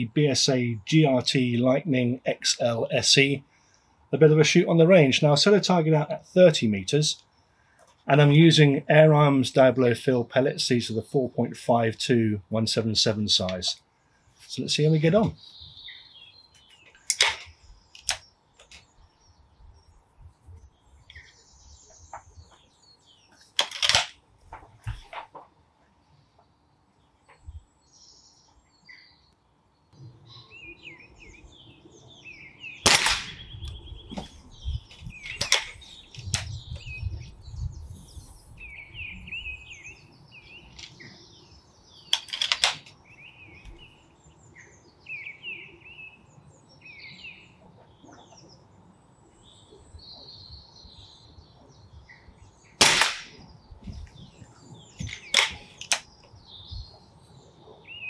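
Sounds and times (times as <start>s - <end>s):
birds chirping: 0.0s - 58.0s
air rifle shots cracking: 17.1s - 18.3s, 23.6s - 24.2s, 32.8s - 33.6s, 35.2s - 36.6s, 42.1s - 42.9s, 52.8s - 53.6s, 55.0s - 56.2s.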